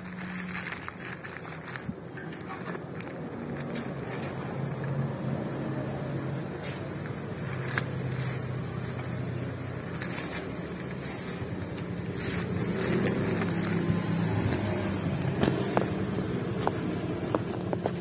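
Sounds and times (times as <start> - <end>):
plastic bag crinkling: 0.0 - 5.3, 7.0 - 15.0.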